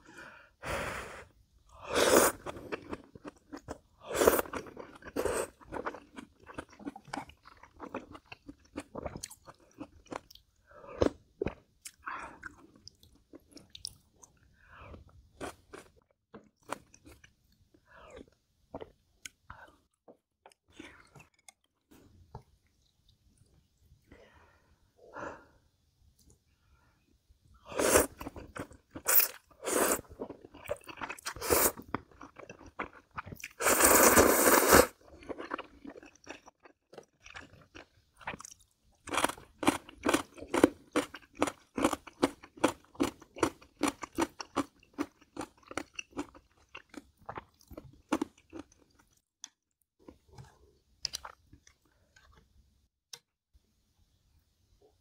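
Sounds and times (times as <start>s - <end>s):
slurping noodles: 1.8s - 3.1s, 29.0s - 30.2s, 31.2s - 31.9s, 33.5s - 35.6s.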